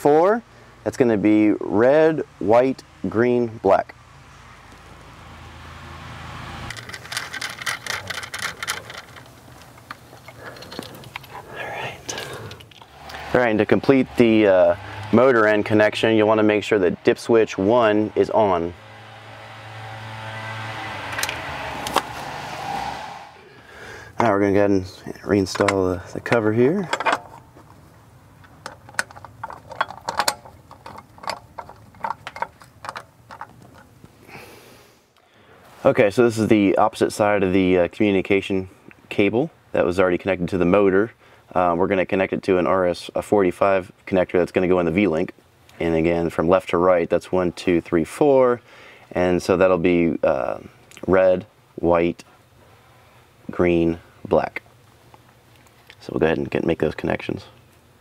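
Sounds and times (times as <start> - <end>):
steady low hum: 0.4 - 41.8.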